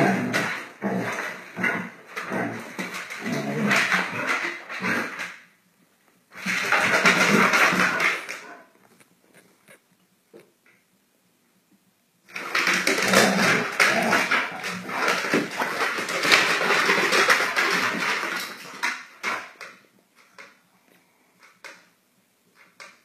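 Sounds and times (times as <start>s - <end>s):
dogs play fighting scuffle: 12.4s - 19.4s.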